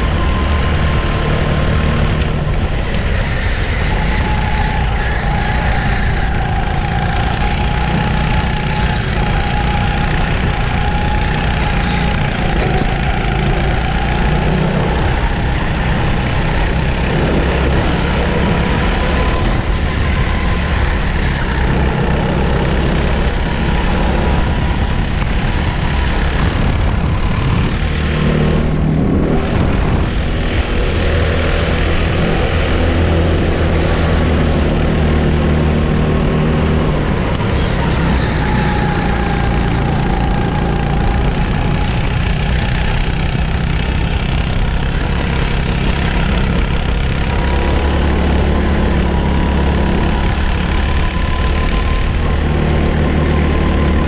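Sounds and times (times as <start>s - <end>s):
go-kart engine racing: 0.0s - 54.0s
other go-kart engines: 0.0s - 54.0s
wind noise: 0.0s - 54.0s.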